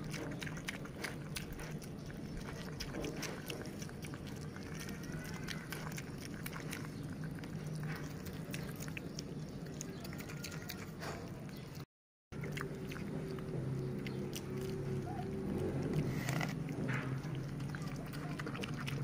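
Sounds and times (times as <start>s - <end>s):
wet chewing and smacking: 0.0s - 19.0s.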